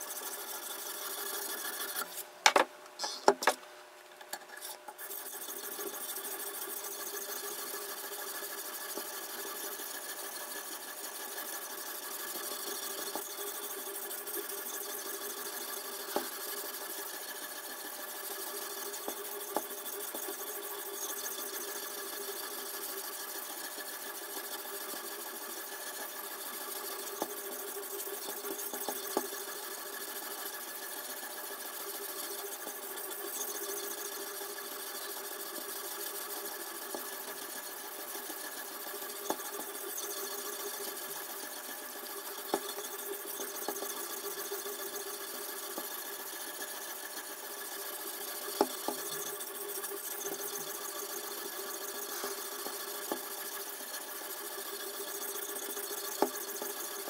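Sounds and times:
sharpening stone rasping on steel: 0:00.0 - 0:02.2, 0:04.5 - 0:31.0.

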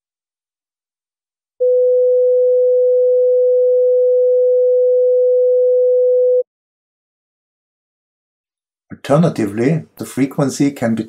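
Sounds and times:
steady sine tone: 0:01.6 - 0:06.4.

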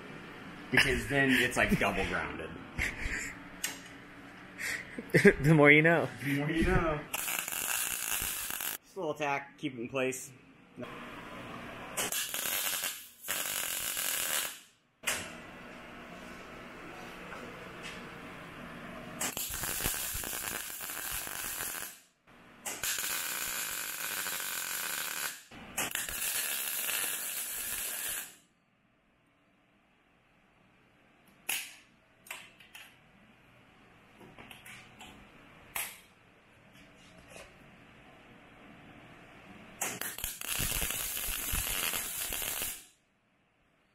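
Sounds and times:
welder hissing: 0:07.1 - 0:08.8, 0:12.0 - 0:14.6, 0:19.2 - 0:22.0, 0:22.7 - 0:28.4, 0:40.0 - 0:42.9.

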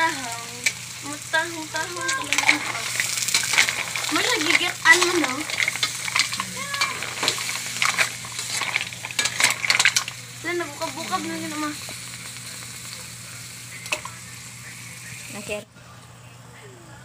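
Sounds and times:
mussels sizzling in a pan: 0:00.0 - 0:15.6
shells clicking against pan: 0:01.9 - 0:10.2.

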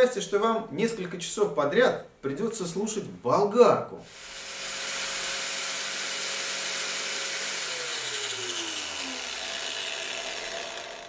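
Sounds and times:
angle grinder whining: 0:04.1 - 0:11.0.

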